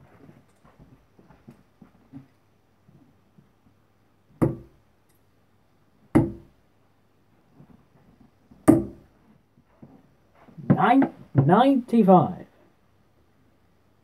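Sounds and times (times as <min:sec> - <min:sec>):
darts striking dartboard: 0:04.4 - 0:04.7, 0:06.2 - 0:06.5, 0:08.7 - 0:09.0.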